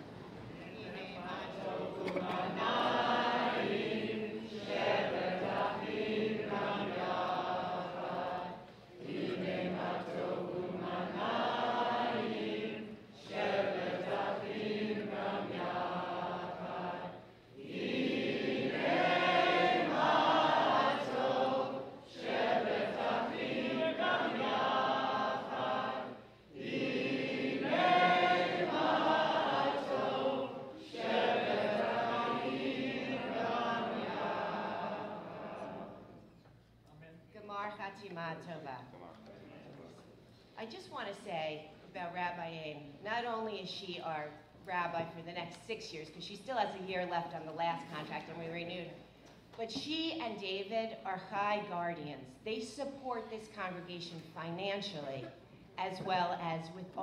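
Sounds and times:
congregation singing: 0:00.0 - 0:36.4.

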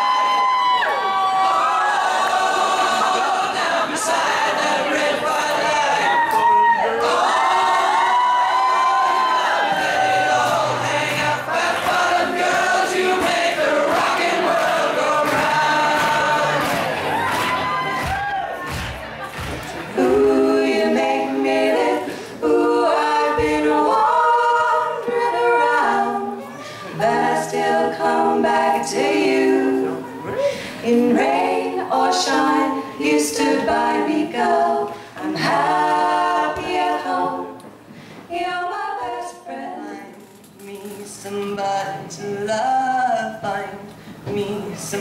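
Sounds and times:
women singing a cappella: 0:01.7 - 0:17.0, 0:19.9 - 0:45.0.

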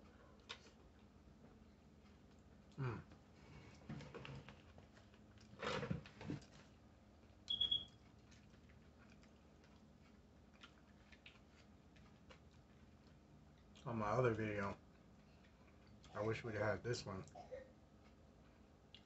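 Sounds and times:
high-pitched electronic beep: 0:07.5 - 0:07.9.

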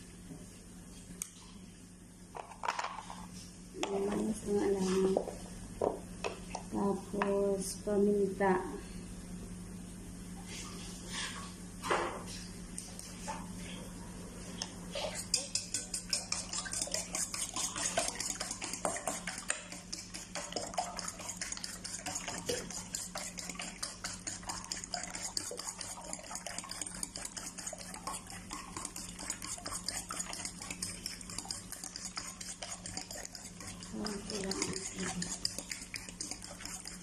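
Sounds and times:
fork beating eggs in metal bowl: 0:03.8 - 0:05.2, 0:14.9 - 0:37.0.

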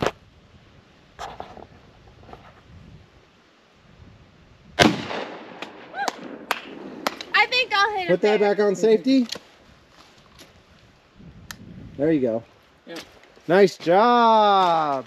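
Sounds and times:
shotgun shot with echo: 0:04.8 - 0:07.2.

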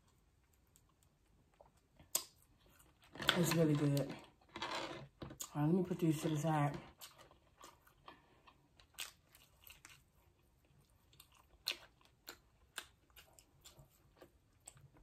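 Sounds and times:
chewing with mouth shut: 0:06.9 - 0:15.0.

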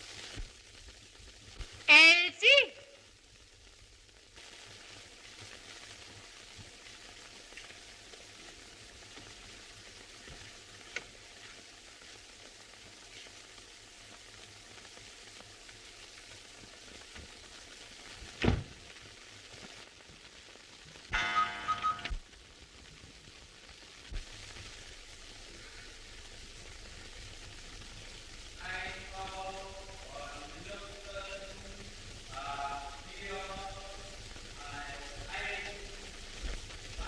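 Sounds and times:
film soundtrack hiss and crackle: 0:00.0 - 0:37.0
loud pitched sound: 0:21.1 - 0:22.2.

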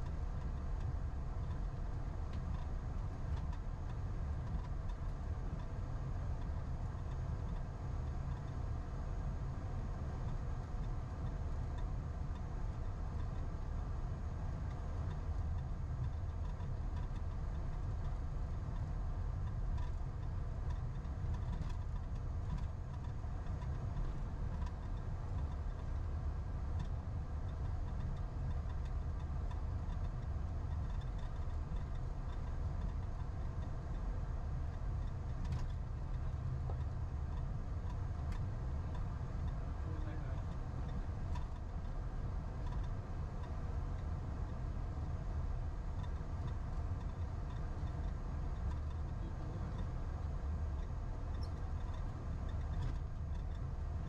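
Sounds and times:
aircraft engines rumbling: 0:30.3 - 0:46.6, 0:47.2 - 0:54.0.

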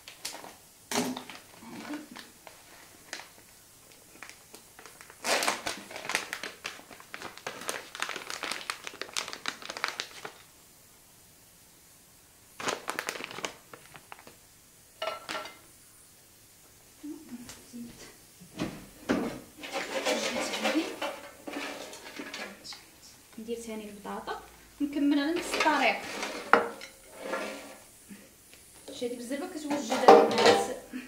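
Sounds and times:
plastic packet crinkling: 0:01.2 - 0:10.5, 0:12.5 - 0:14.4.

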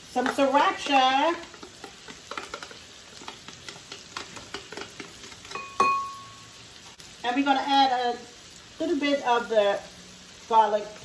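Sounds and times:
spatula tapping glass: 0:05.5 - 0:06.4
sharp glass clink: 0:05.6 - 0:06.4.

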